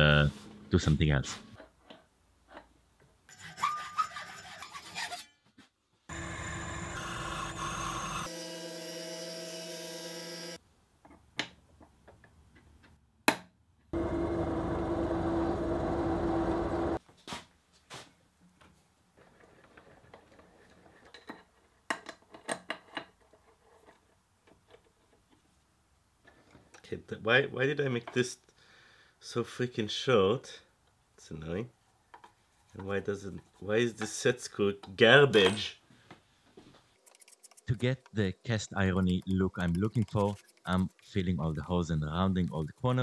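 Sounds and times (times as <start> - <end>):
hacksaw cutting metal: 3.3 - 5.4
power tool running: 6.1 - 10.6, 14.0 - 17.0.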